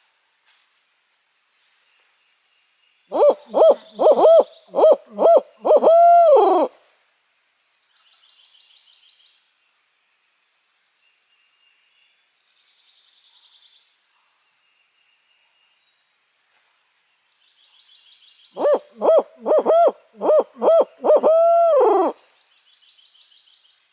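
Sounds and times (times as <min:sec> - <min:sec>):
owl call hoots: 0:03.1 - 0:06.8, 0:18.6 - 0:22.2.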